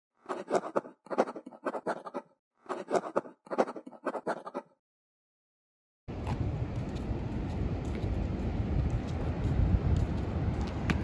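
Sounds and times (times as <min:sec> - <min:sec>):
pen scribbling on paper: 0:00.3 - 0:04.8.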